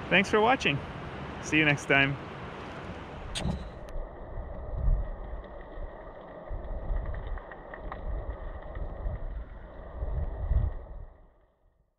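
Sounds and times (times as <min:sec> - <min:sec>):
underwater river rumbling: 0:03.3 - 0:11.5
faint ticks: 0:04.5 - 0:10.0.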